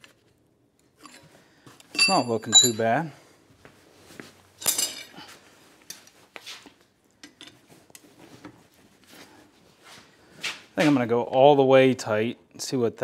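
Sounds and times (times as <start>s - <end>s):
metal tongs clinking on steel: 2.0s - 2.8s.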